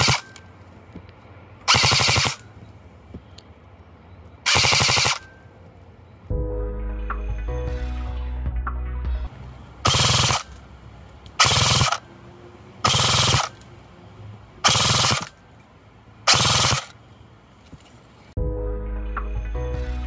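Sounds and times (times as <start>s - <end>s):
airsoft gun full-auto bursts: 0.0s - 0.2s, 1.7s - 2.4s, 4.5s - 5.2s, 9.8s - 10.6s, 11.4s - 12.0s, 12.8s - 13.6s, 14.6s - 15.3s, 16.3s - 17.0s.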